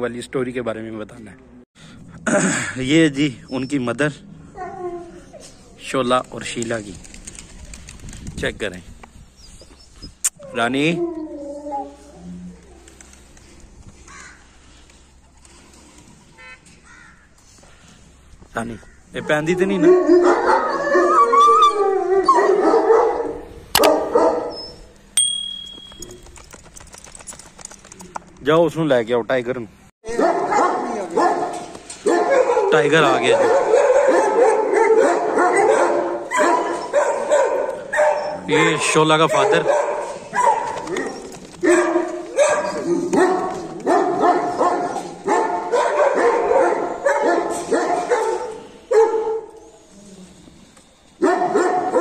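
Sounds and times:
dog whining and yipping: 9.4s - 12.6s, 19.5s - 22.8s, 33.7s - 38.9s, 40.3s - 41.6s
dog barking: 19.2s - 21.1s, 22.2s - 24.6s, 30.1s - 49.6s, 51.2s - 52.0s.

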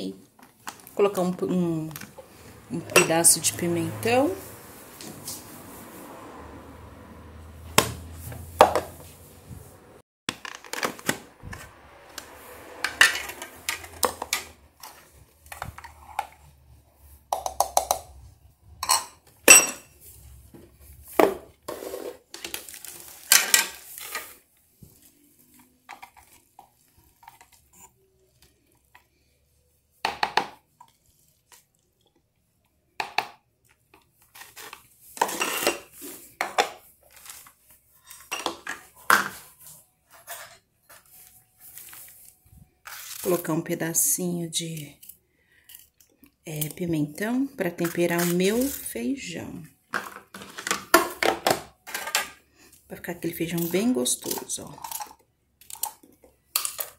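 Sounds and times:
plastic parts clicking and clattering: 10.3s - 11.6s, 49.9s - 52.4s, 54.2s - 56.9s.

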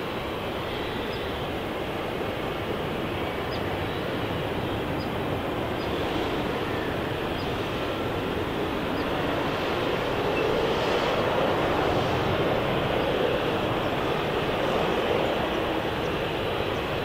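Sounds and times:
jet engine rushing: 1.4s - 17.0s.

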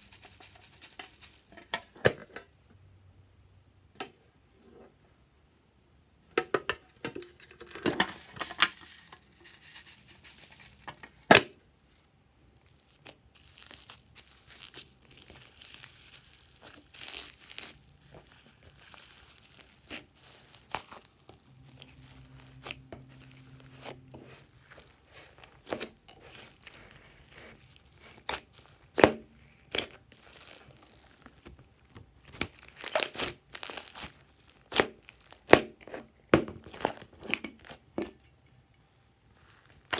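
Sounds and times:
hands kneading slime: 12.6s - 38.2s.

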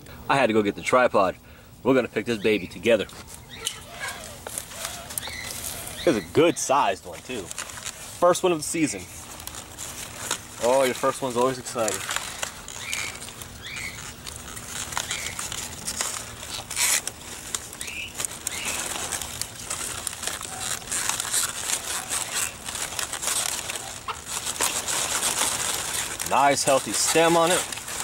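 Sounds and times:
leaves rustling and crackling: 2.5s - 28.0s
leaves snapping: 3.0s - 28.0s.

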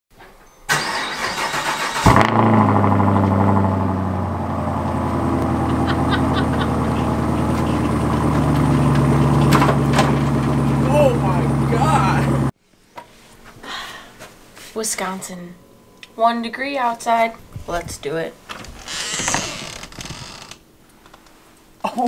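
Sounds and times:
car starter cranking: 0.7s - 4.3s, 5.0s - 12.5s
car engine revving and idling: 1.6s - 12.5s.

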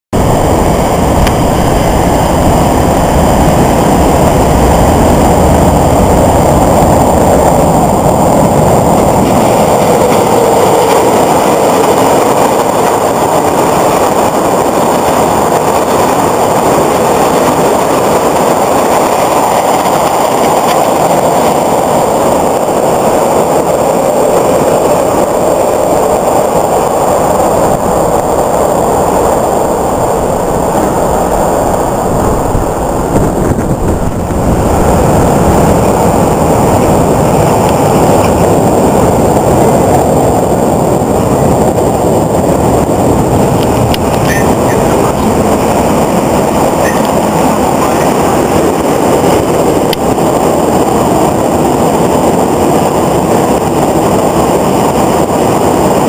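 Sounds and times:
train wheels on rails: 0.1s - 56.0s.

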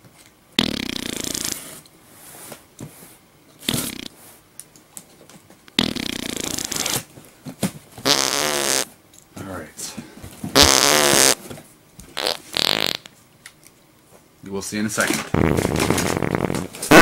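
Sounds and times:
fart sound effects: 0.6s - 1.7s, 3.6s - 4.2s, 5.8s - 7.1s, 8.0s - 8.9s, 10.5s - 11.4s, 12.2s - 13.1s, 15.3s - 17.0s.

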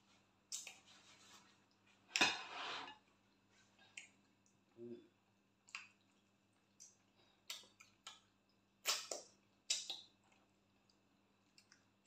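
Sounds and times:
lip smacks and finger-licking: 0.5s - 0.8s, 3.8s - 4.6s, 5.6s - 11.9s.

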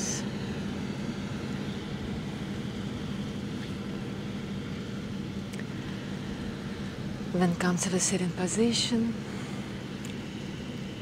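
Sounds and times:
faint constant hum: 0.0s - 11.0s.

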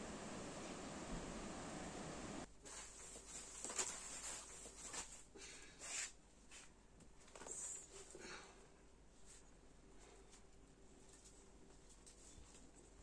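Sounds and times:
sacks and plastic bags rustling: 2.6s - 6.1s.

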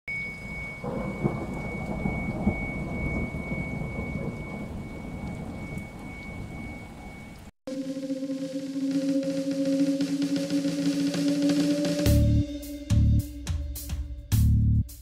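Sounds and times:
rain: 0.1s - 11.6s
steady high-pitched tone: 0.1s - 12.9s
thunder rumbling: 0.2s - 12.4s.

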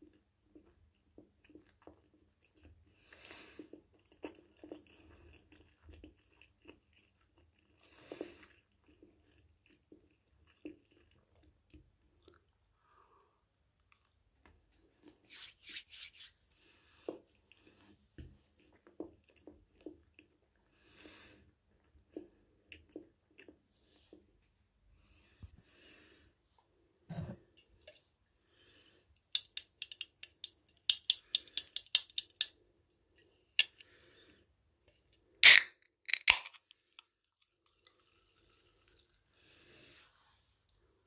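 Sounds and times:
soft chewing: 0.0s - 15.3s, 16.4s - 31.8s, 36.7s - 41.0s
can tab cracking open: 35.4s - 36.7s.

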